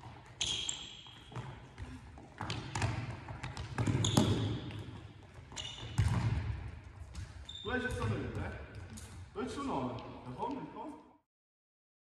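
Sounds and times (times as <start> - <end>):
football thuds ringing in hall: 0.0 - 10.0.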